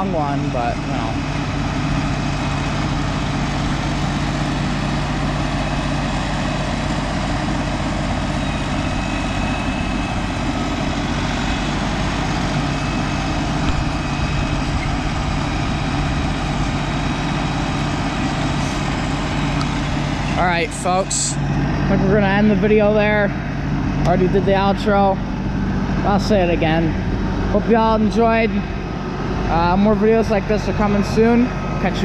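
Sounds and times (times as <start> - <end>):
tractor diesel engine running: 0.0 - 32.0.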